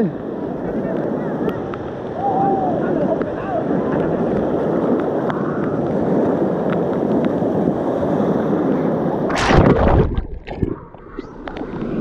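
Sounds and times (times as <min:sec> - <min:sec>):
wave splashing: 0:00.0 - 0:12.0.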